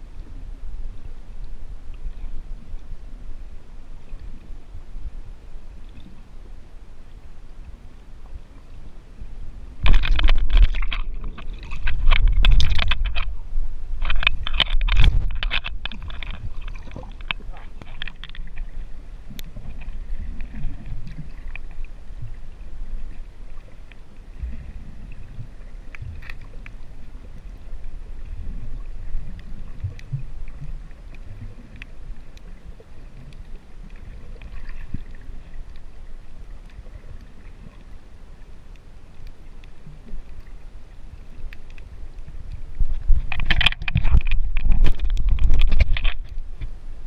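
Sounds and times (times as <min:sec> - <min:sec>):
water sloshing underwater: 0:00.0 - 0:47.0
faint clicks: 0:14.0 - 0:22.3, 0:23.0 - 0:38.0, 0:38.6 - 0:46.8.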